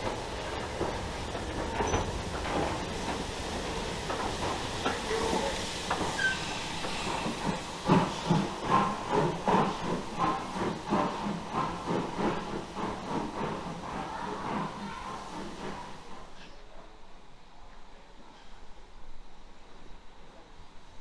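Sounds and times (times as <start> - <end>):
steam hissing: 0.0 - 16.6
steam locomotive chuffing: 0.0 - 16.6.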